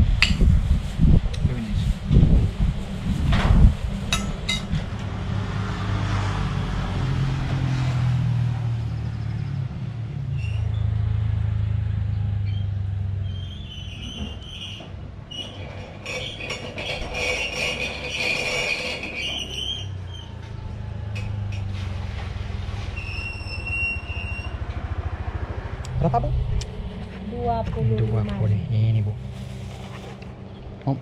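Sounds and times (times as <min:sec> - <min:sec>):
vehicles passing on road: 0:00.0 - 0:31.0
high-pitched squeaks: 0:12.4 - 0:21.8, 0:22.7 - 0:24.6.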